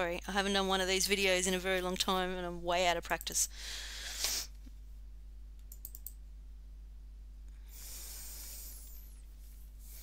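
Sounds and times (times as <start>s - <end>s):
low electrical hum: 0.0s - 10.0s
mouse clicks: 5.6s - 6.2s.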